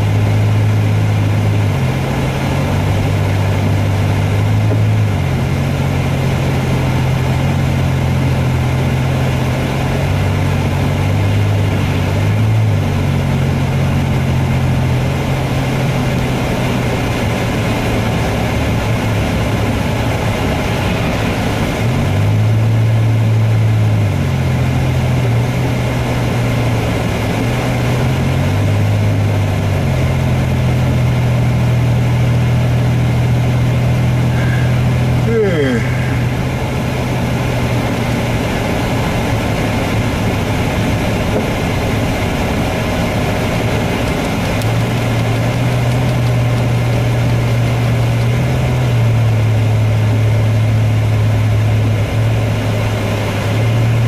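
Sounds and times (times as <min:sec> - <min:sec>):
car engine and tyre drone: 0:00.0 - 0:54.0
tyres on slushy road: 0:00.0 - 0:54.0.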